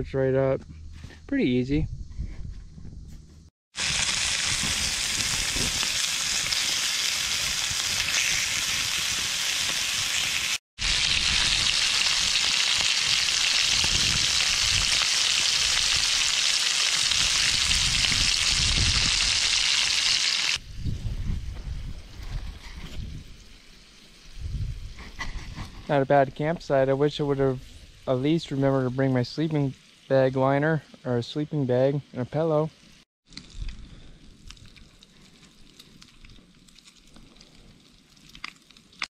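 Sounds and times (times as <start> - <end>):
food sizzling in a pan: 3.8 - 20.6.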